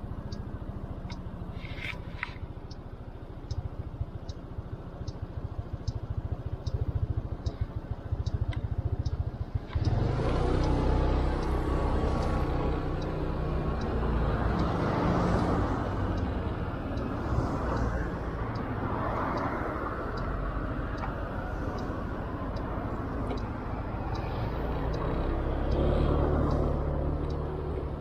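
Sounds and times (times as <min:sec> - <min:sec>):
road noise: 0:00.0 - 0:28.0
turn signal ticking: 0:00.0 - 0:28.0
motorcycle engine: 0:05.3 - 0:19.0.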